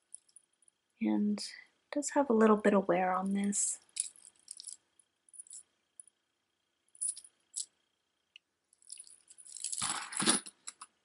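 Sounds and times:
metal chain links clinking: 4.0 - 5.6, 7.0 - 7.7, 8.8 - 10.4.

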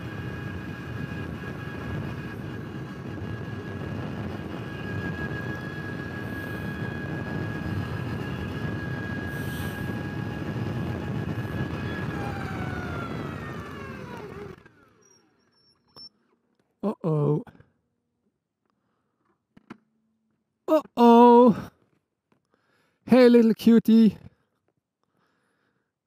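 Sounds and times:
wind and road noise: 0.0 - 15.3
electric motorcycle whine: 0.0 - 16.2.

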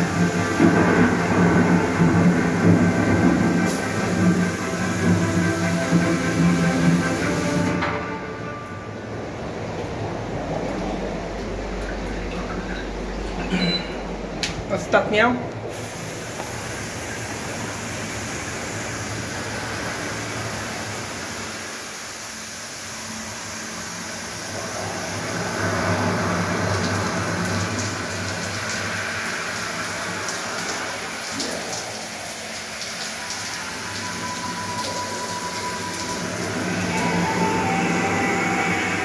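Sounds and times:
shower water spraying on tiles: 0.0 - 7.8, 15.7 - 39.0.

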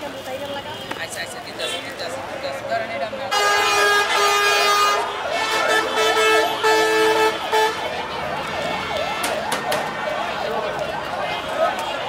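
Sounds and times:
vehicle horn honking: 3.3 - 7.9
siren yelping: 4.2 - 12.0.

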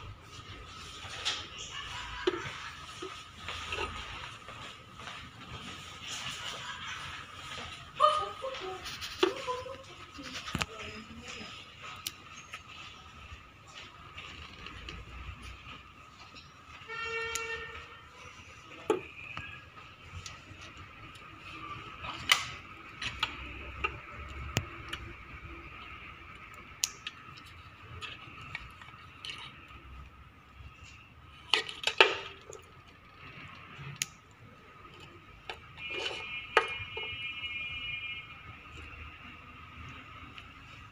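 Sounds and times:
plastic connectors clicking: 22.0 - 30.2, 30.9 - 35.8.

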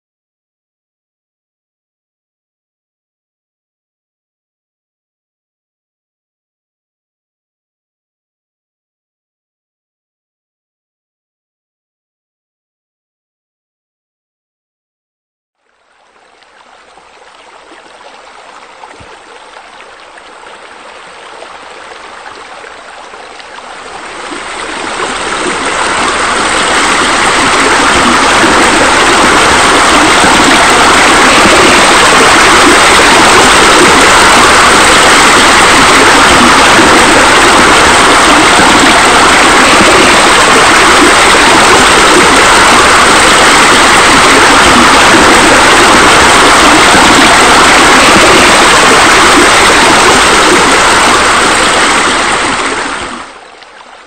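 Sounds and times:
rushing water: 15.6 - 54.0.

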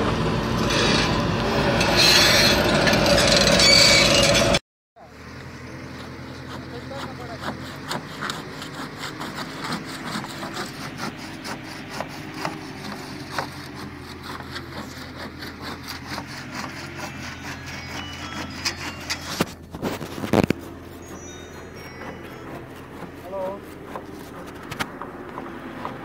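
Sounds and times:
diesel engine of heavy machinery: 0.0 - 26.0.

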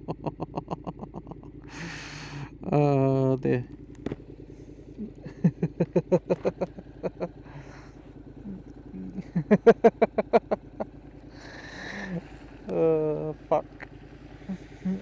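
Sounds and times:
man laughing: 0.0 - 2.4, 5.0 - 12.2
motorcycle engine idling: 0.0 - 15.0.

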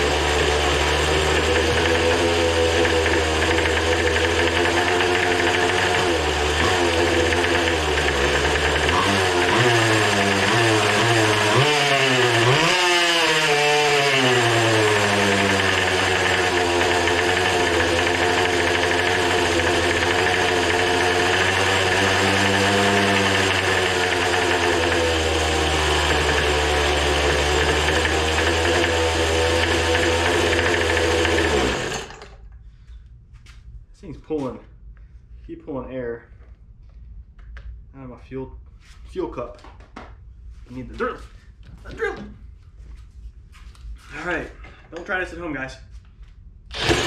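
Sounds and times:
two-stroke engine revving: 0.0 - 32.4, 46.7 - 47.0.

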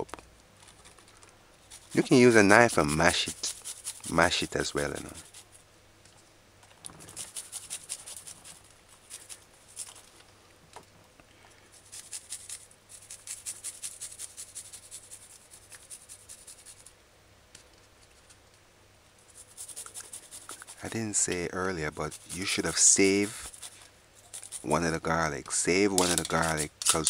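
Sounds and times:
garlic scraping on metal grater: 1.7 - 5.5, 7.0 - 9.9, 11.8 - 16.8, 19.5 - 27.0.

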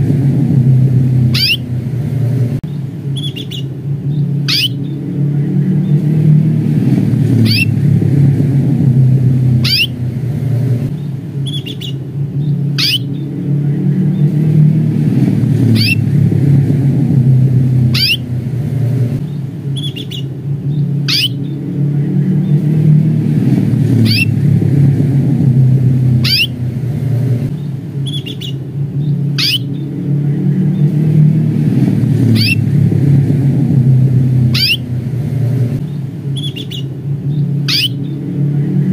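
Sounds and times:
low rumble: 0.0 - 38.9
canary call notes: 1.2 - 1.8, 3.1 - 5.1, 7.3 - 7.8, 9.5 - 10.1, 11.4 - 13.4, 15.6 - 16.1, 17.7 - 18.4, 19.3 - 21.6, 23.9 - 24.4, 26.2 - 26.7, 28.0 - 29.9, 32.2 - 32.7, 34.3 - 35.2, 35.8 - 38.2.

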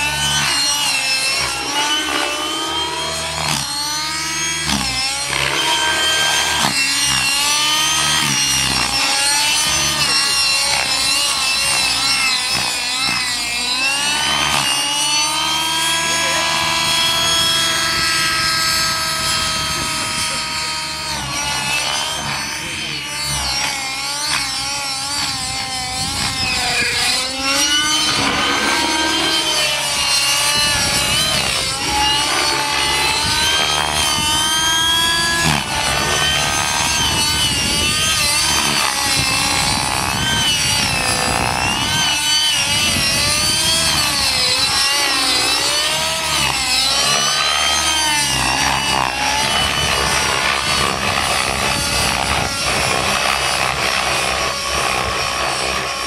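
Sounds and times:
model helicopter engine buzzing: 0.0 - 56.0.

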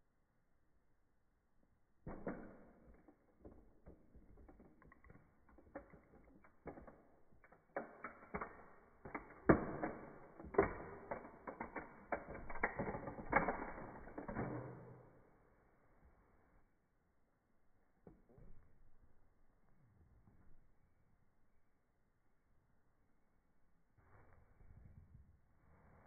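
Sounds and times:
plastic toy car creaking and cracking: 2.1 - 15.2.

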